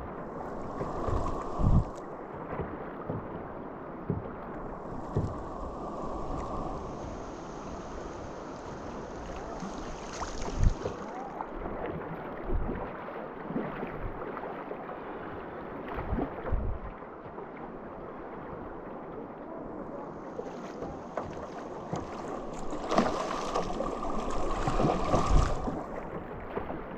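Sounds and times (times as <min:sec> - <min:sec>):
paddle strokes splashing: 0:00.0 - 0:18.8, 0:19.6 - 0:26.9
river current rushing: 0:00.2 - 0:02.1, 0:04.4 - 0:11.6, 0:21.6 - 0:26.1.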